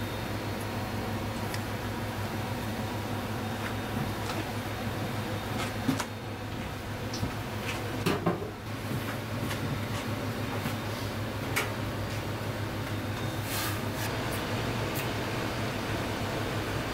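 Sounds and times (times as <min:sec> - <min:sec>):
kitchen machinery hum: 0:00.0 - 0:16.9.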